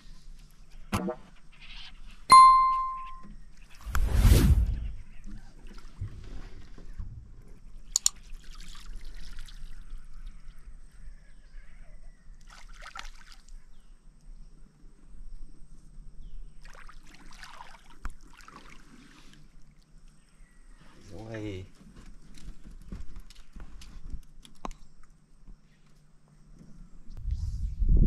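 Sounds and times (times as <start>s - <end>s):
water splashing and trickling: 7.8s - 10.4s, 12.4s - 13.7s, 16.6s - 20.2s.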